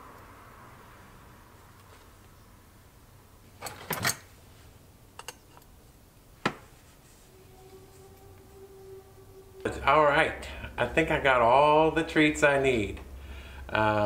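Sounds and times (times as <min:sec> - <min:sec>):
small metal clicks and knocks: 0:05.2 - 0:05.7.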